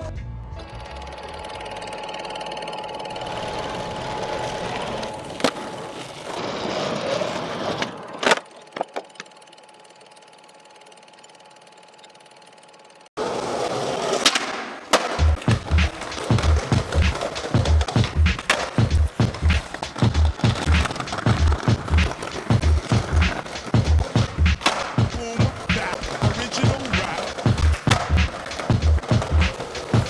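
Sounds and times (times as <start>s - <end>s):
skateboard grinding on concrete: 3.1s - 9.0s, 13.2s - 30.0s
sharp knocks: 22.9s - 29.6s.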